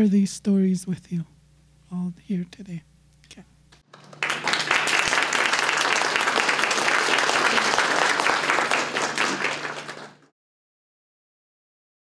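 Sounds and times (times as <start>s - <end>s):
audience applauding: 3.9s - 10.3s.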